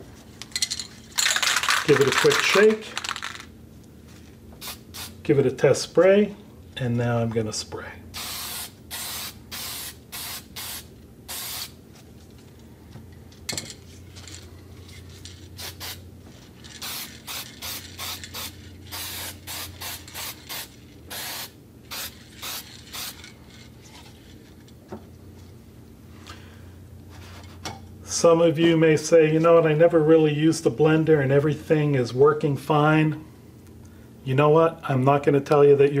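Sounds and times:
aerosol spray can hissing: 0:08.2 - 0:11.8, 0:16.8 - 0:23.2.

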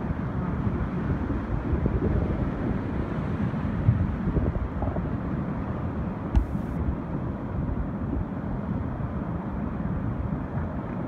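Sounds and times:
wind buffeting the microphone: 0:00.0 - 0:11.0
sharp knock: 0:06.4 - 0:06.8.

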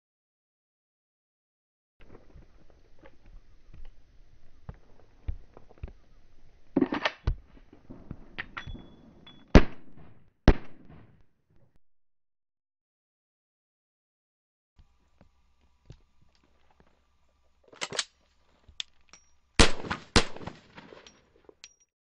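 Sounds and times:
slowed pistol shots: 0:09.5 - 0:11.2, 0:19.6 - 0:20.7.

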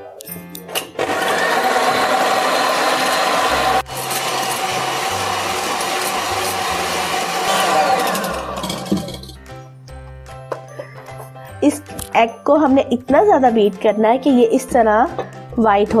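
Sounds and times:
electric hand mixer whirring: 0:01.0 - 0:09.4.

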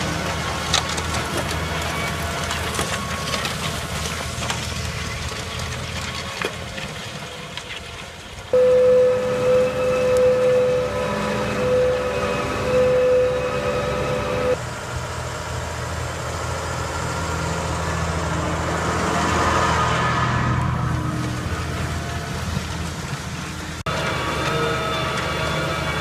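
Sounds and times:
tractor engine under load: 0:00.0 - 0:26.0.

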